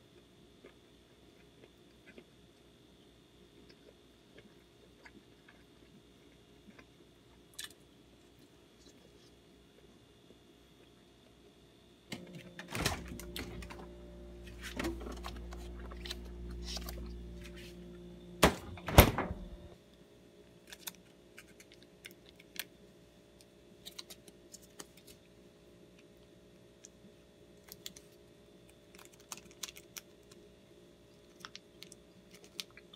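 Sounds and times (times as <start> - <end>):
refrigerator hum: 0.0 - 32.9
items rattling on fridge shelves: 12.1 - 19.8
refrigerator door shutting: 12.1 - 19.8
plastic pack crinkling: 28.9 - 30.4.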